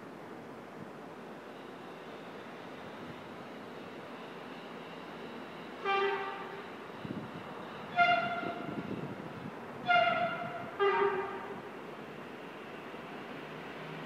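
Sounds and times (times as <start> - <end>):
train horn blasts: 5.8 - 6.7, 7.8 - 9.0, 9.8 - 11.7.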